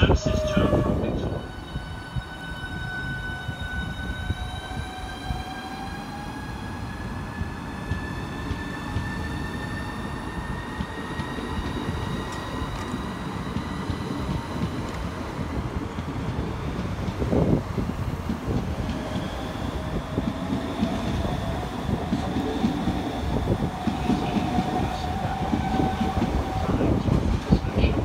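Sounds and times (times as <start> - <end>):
wheels rumbling on rails: 6.5 - 28.0.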